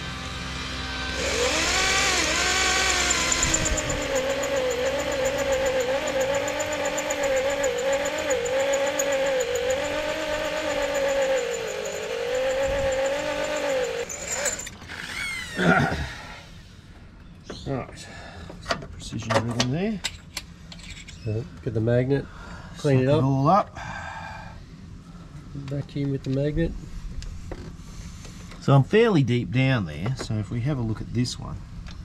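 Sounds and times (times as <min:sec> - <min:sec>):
electric drill whining: 0:00.0 - 0:16.6.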